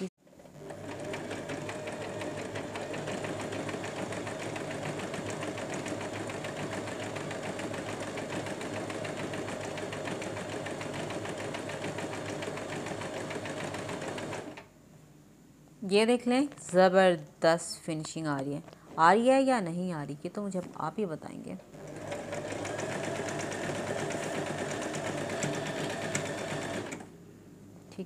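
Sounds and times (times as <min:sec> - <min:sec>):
sewing machine stitching: 0:00.3 - 0:14.6, 0:21.7 - 0:27.1.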